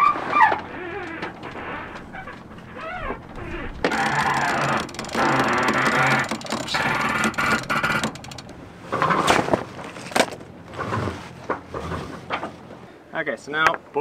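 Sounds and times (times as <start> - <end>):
rope running over winch: 0.1 - 9.6
rigging knocks: 0.4 - 8.6.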